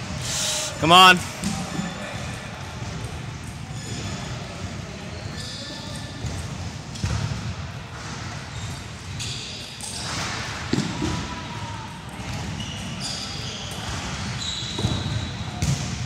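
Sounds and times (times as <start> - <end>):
shoe squeaks on wooden floor: 0.2 - 0.8.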